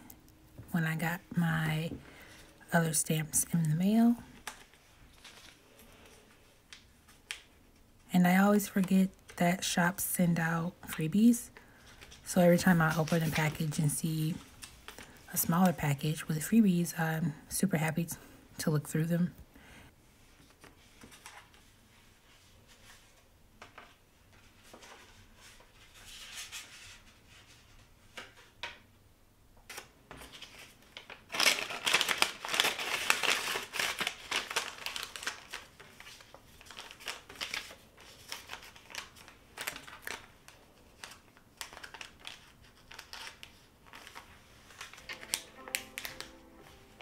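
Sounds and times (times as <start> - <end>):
plastic bag crinkling: 30.4 - 47.0
soft music: 45.0 - 47.0.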